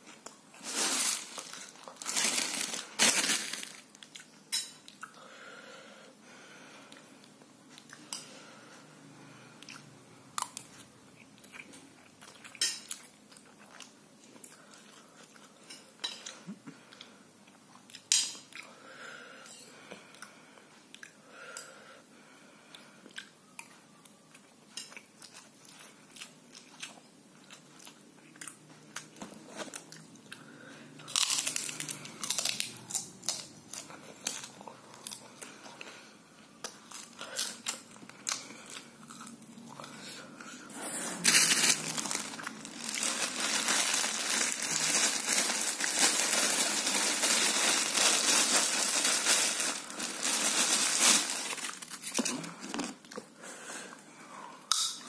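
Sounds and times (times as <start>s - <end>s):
crunching and rustling while eating: 0.0s - 5.1s, 22.7s - 53.9s.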